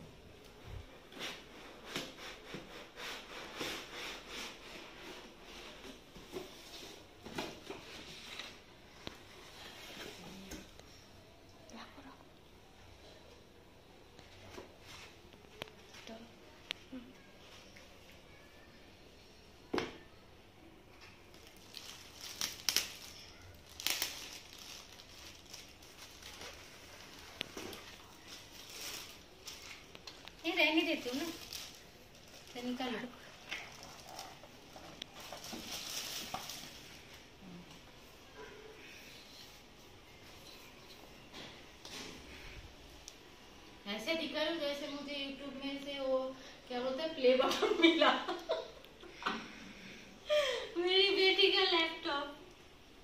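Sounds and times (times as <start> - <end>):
plastic wrapping crinkling: 21.0 - 37.3.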